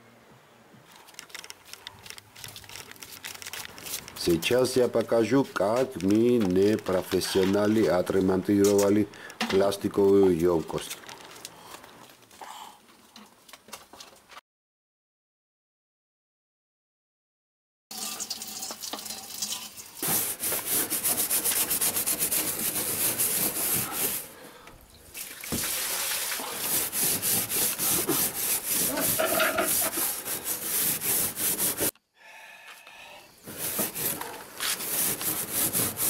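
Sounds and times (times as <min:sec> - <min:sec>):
hand tool scraping plastic barrel: 0:20.0 - 0:24.3, 0:25.5 - 0:31.9, 0:33.4 - 0:36.0.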